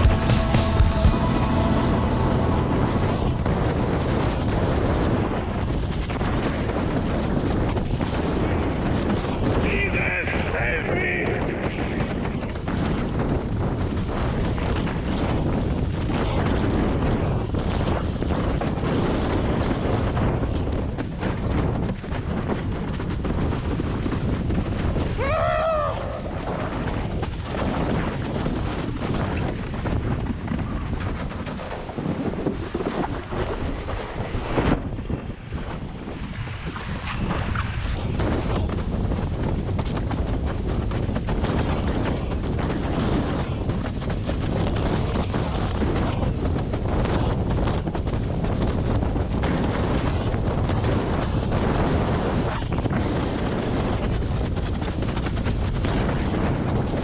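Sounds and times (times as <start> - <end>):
rising and falling tone: 0.0 - 5.6
water rushing under board: 0.0 - 57.0
wind buffeting microphone: 0.0 - 57.0
water rushing past board: 30.3 - 38.2.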